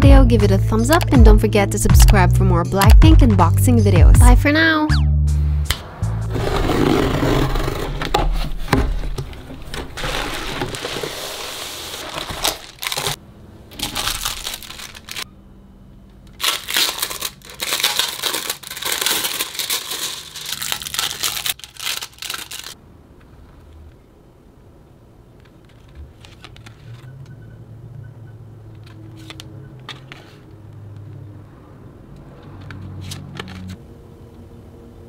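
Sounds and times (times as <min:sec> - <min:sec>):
cardboard tear strip ripping: 0:06.3 - 0:08.1, 0:10.0 - 0:13.2, 0:13.8 - 0:15.2, 0:16.4 - 0:22.8
plastic wrapping crinkling: 0:09.3 - 0:15.3, 0:16.3 - 0:22.8.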